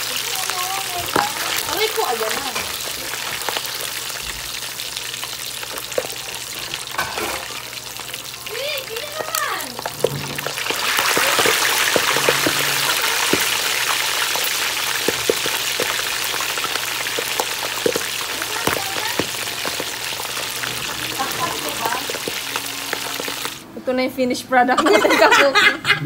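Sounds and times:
meat sizzling in hot oil: 0.0s - 23.7s
oil spattering pops: 9.1s - 23.6s.

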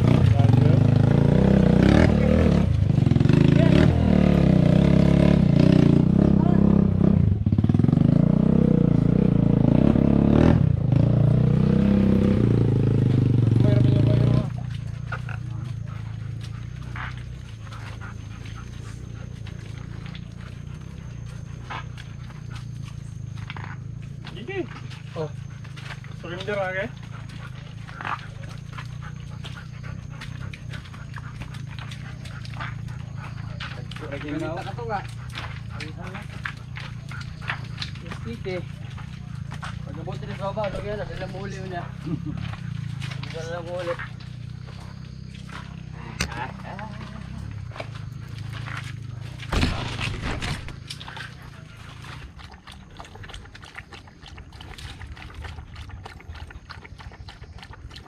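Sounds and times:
footsteps on rough trail: 9.9s - 57.9s
dog panting: 13.1s - 58.0s.

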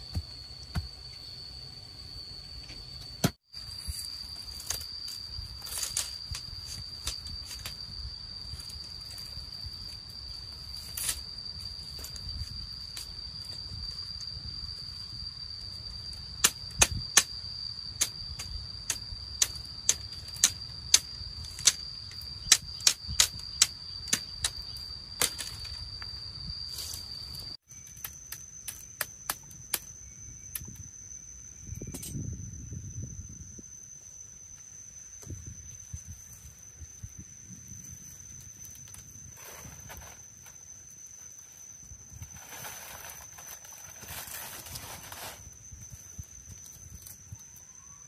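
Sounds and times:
high-pitched insect drone: 0.0s - 48.0s.

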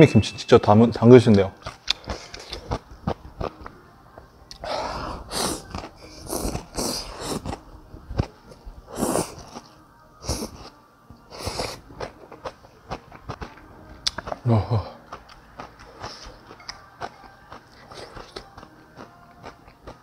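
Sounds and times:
quiet chewing: 1.6s - 20.0s
person slurping noodles: 4.6s - 7.6s, 8.9s - 9.6s, 11.3s - 11.8s.

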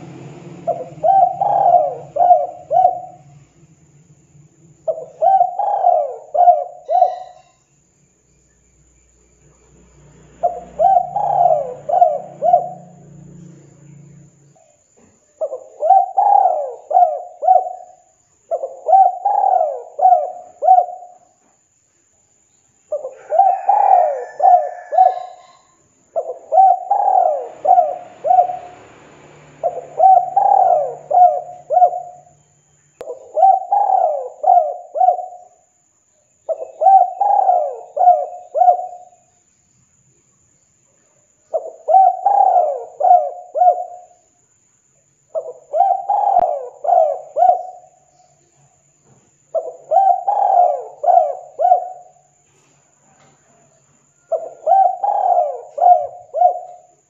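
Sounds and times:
dove cooing: 0.0s - 3.6s, 4.7s - 7.6s, 10.4s - 13.9s, 15.4s - 21.3s, 22.9s - 32.4s, 33.0s - 35.6s, 36.5s - 39.3s, 41.5s - 44.2s, 45.3s - 48.1s, 49.5s - 52.4s, 53.2s - 57.0s.

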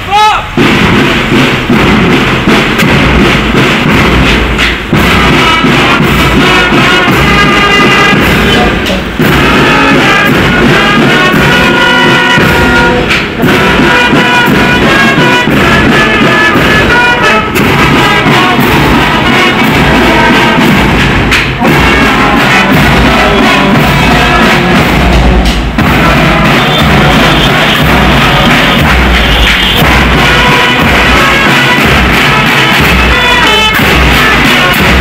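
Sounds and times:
brass band playing: 0.0s - 35.0s.

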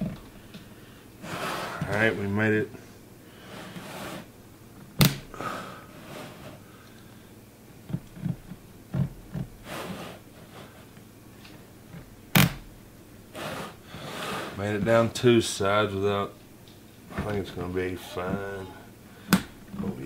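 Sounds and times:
knife scraping plastic: 3.4s - 4.3s.

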